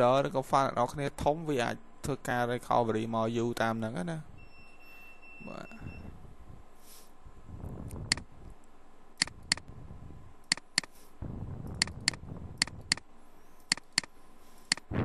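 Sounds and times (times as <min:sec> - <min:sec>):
low background hum: 0:00.0 - 0:15.0
computer mouse clicking: 0:08.0 - 0:08.3, 0:09.2 - 0:09.7, 0:10.4 - 0:11.0, 0:11.7 - 0:13.0, 0:13.6 - 0:14.1, 0:14.7 - 0:14.9.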